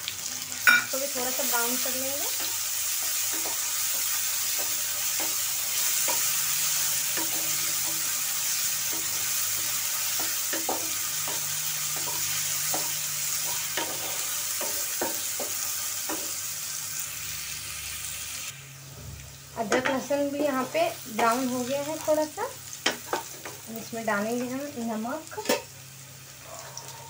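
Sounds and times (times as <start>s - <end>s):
aromatics sizzling in oil: 0.0s - 27.0s.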